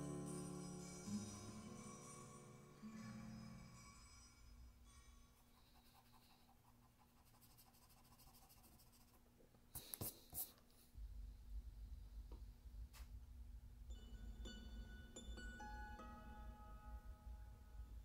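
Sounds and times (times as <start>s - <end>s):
pencil scratching on paper: 5.2s - 9.2s.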